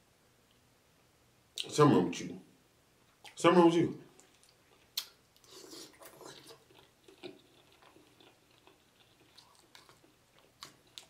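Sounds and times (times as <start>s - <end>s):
person chewing: 4.1s - 11.0s
wet mouth clicks and smacks: 4.2s - 11.0s.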